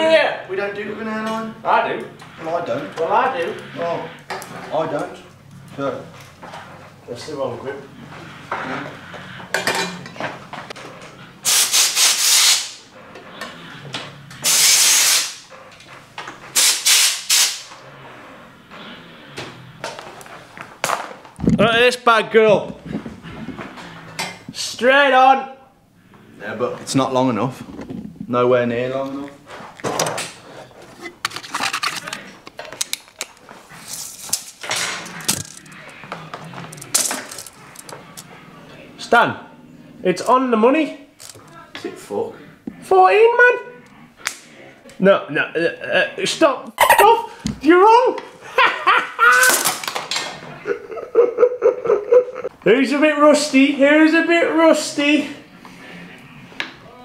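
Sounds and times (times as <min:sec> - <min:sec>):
rubbing and handling noise: 0:10.3 - 0:13.1, 0:29.2 - 0:38.3
compressed air blow gun hissing: 0:11.4 - 0:12.8, 0:14.4 - 0:15.4, 0:16.6 - 0:17.7
tape measure clicking and rattling: 0:32.8 - 0:35.8, 0:36.7 - 0:38.2
metal tools clinking in drawer: 0:36.7 - 0:38.2.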